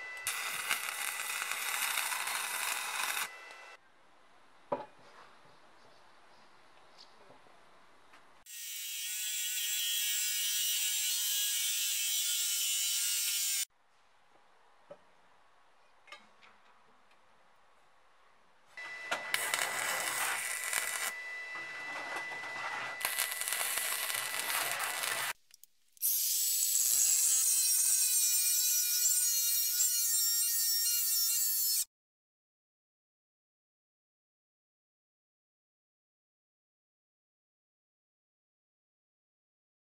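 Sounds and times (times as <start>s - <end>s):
angle grinder cutting steel: 0.0s - 3.8s, 8.5s - 13.7s, 18.8s - 25.4s, 26.0s - 31.9s.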